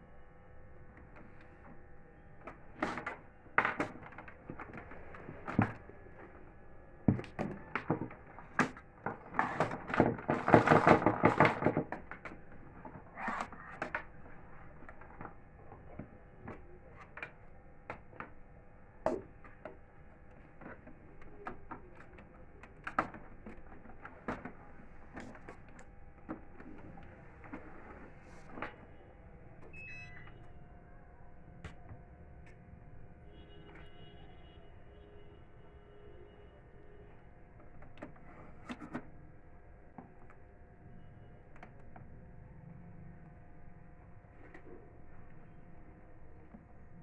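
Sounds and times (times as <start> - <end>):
printer plastic clicks and rattles: 7.3 - 12.4.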